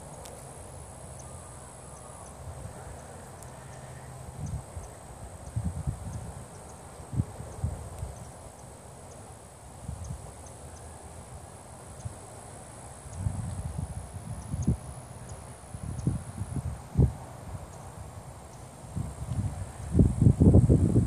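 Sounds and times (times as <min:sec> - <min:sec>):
steady outdoor hiss: 0:00.0 - 0:21.0
wind buffeting microphone: 0:04.3 - 0:08.3, 0:13.1 - 0:15.0, 0:15.7 - 0:18.3, 0:18.9 - 0:21.0.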